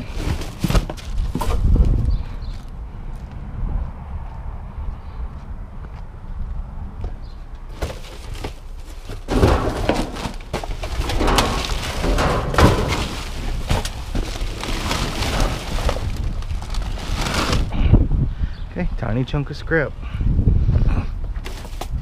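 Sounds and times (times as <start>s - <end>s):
plastic bags crinkling and rustling: 0.0s - 1.5s, 7.8s - 17.7s
knocks in dumpster: 9.2s - 14.0s.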